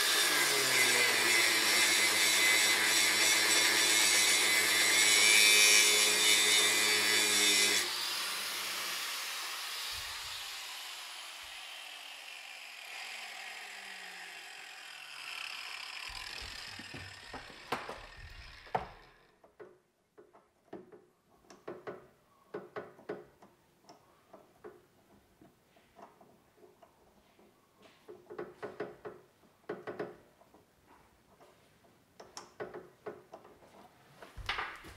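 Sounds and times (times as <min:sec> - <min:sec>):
angle grinder grinding metal: 0:00.0 - 0:19.3
motor winding down hum: 0:10.0 - 0:19.2.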